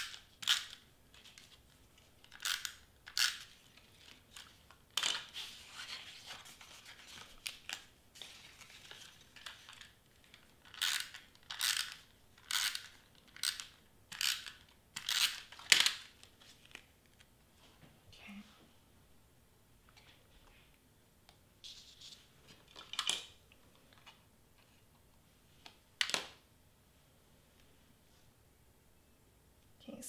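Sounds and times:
paper rustling: 3.4s - 11.3s.

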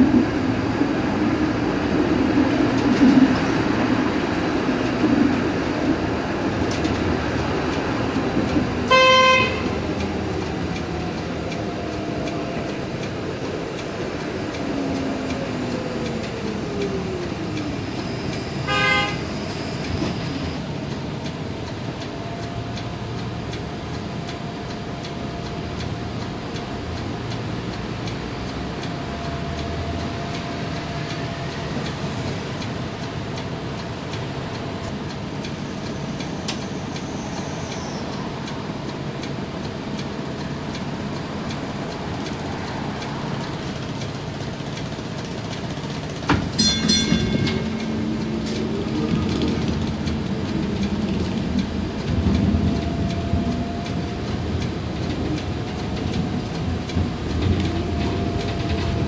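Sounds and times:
streetcar running noise: 0.0s - 59.0s
horn toots: 8.9s - 9.7s, 18.7s - 19.2s.

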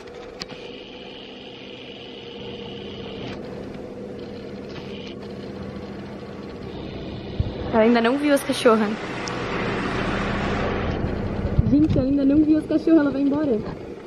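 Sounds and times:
car engine idling: 3.6s - 14.0s.

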